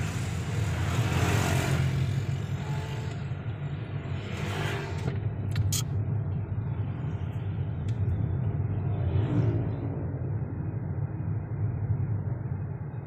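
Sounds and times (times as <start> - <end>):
car engine and road rumble: 0.0 - 13.0
sharp click: 5.5 - 5.9.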